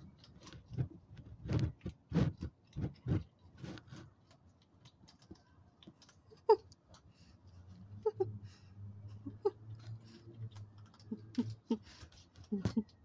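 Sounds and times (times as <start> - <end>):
animal crunching dry food: 0.0 - 6.2
sharp click and squeak: 9.2 - 13.0.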